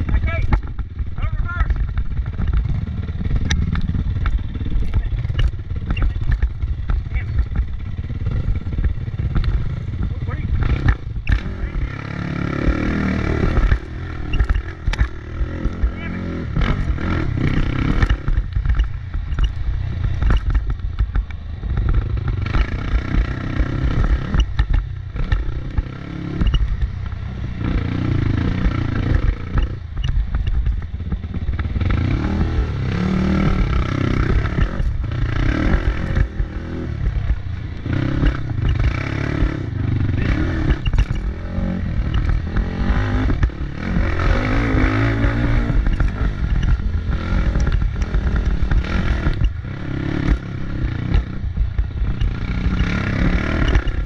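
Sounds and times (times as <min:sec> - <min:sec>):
motorcycle engine revving: 0:00.0 - 0:54.0
rattling and clattering: 0:33.4 - 0:49.6.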